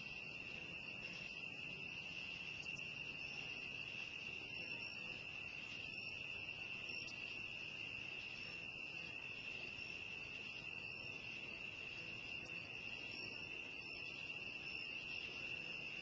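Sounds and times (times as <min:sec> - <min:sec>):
crickets trilling: 0:00.0 - 0:16.0.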